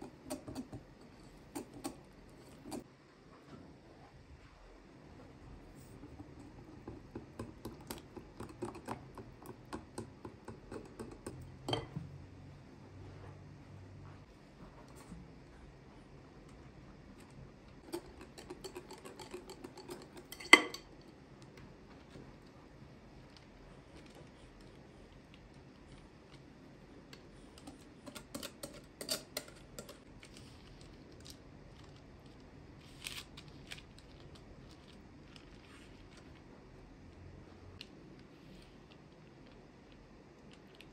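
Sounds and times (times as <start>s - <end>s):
kitchen utensils clicking and knocking: 17.8s - 20.9s.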